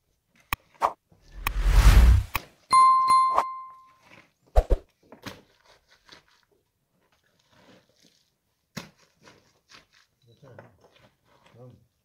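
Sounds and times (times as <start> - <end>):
earth scraping: 1.3 - 2.4.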